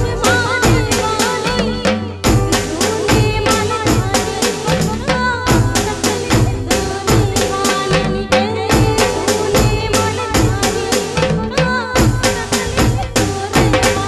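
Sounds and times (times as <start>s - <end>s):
music with fast drum beat: 0.0s - 14.0s.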